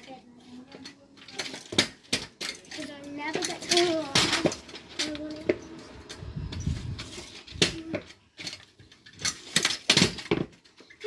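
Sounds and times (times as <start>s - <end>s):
scooter knocks and metallic clinks: 0.0s - 11.0s
scooter wheels rolling rumble: 2.8s - 10.6s.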